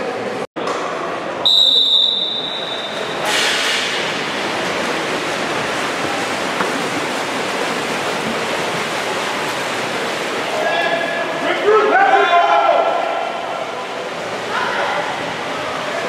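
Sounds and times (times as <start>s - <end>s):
pool hall noise: 0.0s - 16.0s
referee's whistle blast: 1.5s - 3.5s
water splashing: 1.5s - 16.0s.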